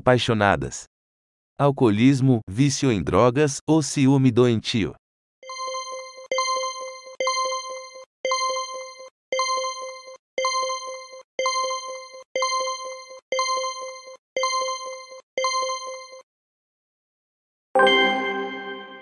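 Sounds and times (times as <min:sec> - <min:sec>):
ringing countdown tone: 0:05.4 - 0:16.2
quick timer ticks: 0:05.5 - 0:16.2.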